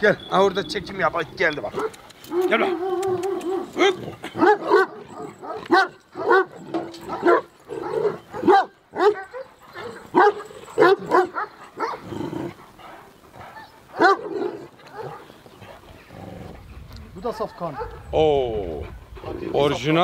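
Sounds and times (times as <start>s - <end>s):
dogs barking: 1.7s - 15.9s, 17.4s - 18.2s.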